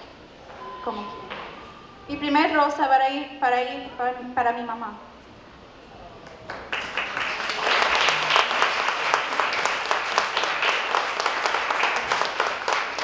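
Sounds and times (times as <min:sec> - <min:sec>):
crowd applauding: 0:06.2 - 0:13.0.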